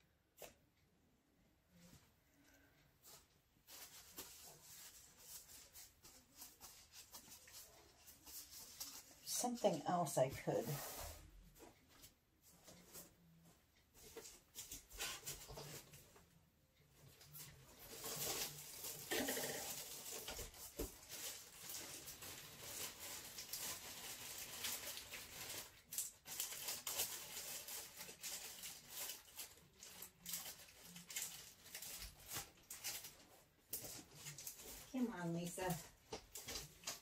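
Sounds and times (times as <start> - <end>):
rustling: 1.7 - 9.8, 10.4 - 37.0
small hard objects clattering: 17.8 - 33.2.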